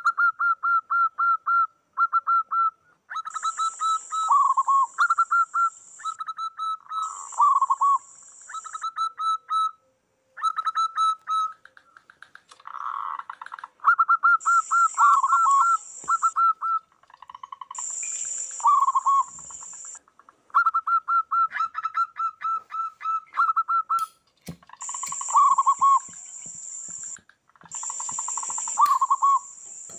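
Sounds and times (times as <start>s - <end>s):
high-pitched hiss: 3.3s - 6.2s, 6.8s - 8.9s, 14.4s - 16.5s, 17.8s - 20.0s, 24.0s - 29.9s
doves cooing: 10.4s - 23.9s, 24.6s - 29.9s.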